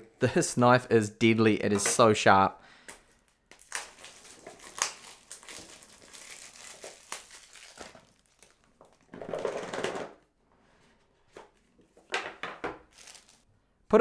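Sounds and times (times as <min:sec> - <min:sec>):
plastic shrink-wrap crinkling: 0:03.2 - 0:09.1, 0:12.9 - 0:13.5.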